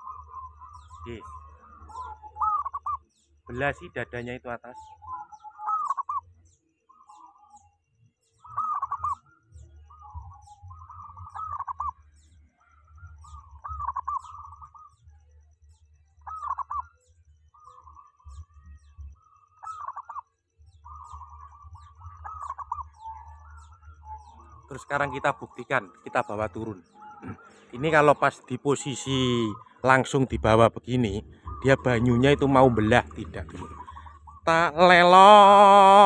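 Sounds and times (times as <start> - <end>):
dove cooing: 0.0 - 3.0, 4.7 - 6.2, 8.4 - 9.2, 9.9 - 12.0, 12.9 - 15.0, 16.2 - 16.9, 19.2 - 20.2, 20.8 - 35.2.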